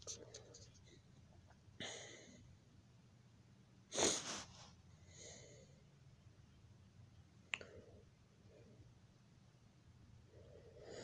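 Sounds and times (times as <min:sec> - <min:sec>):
low steady hum: 0:00.0 - 0:11.0
person breathing: 0:04.0 - 0:05.9, 0:10.2 - 0:11.0.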